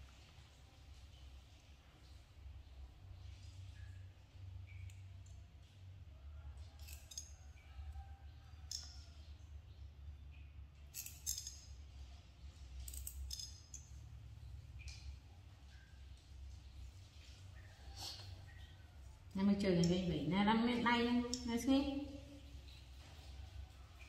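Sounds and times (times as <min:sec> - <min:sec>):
low steady hum: 0:00.0 - 0:24.0.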